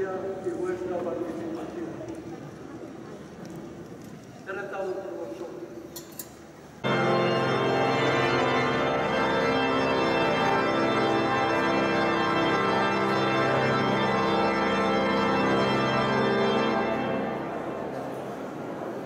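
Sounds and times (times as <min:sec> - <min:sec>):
pipe organ chords: 0:06.8 - 0:18.7.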